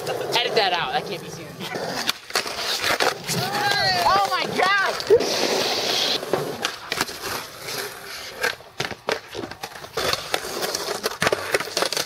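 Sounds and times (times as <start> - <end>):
skateboard wheels rolling on concrete: 0.0 - 12.0
skateboard clacks and knocks: 1.7 - 7.4, 8.3 - 12.0.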